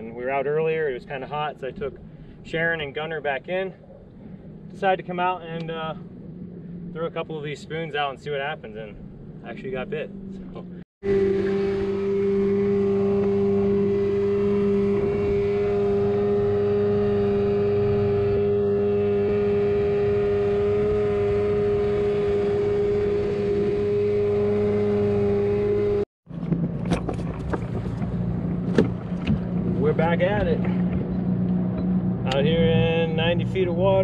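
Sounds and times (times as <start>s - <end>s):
outboard motor droning: 9.0s - 34.0s.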